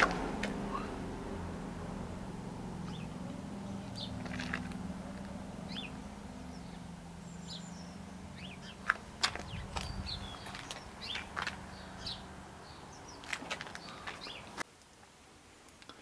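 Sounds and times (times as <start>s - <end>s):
low steady hum: 0.0s - 13.1s
birds chirping: 0.0s - 14.6s.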